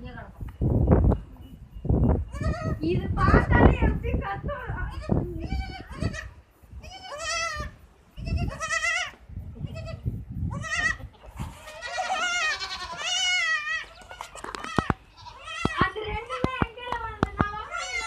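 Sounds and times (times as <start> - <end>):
goat kid bleating: 2.3 - 2.8, 4.6 - 16.6, 17.4 - 18.0.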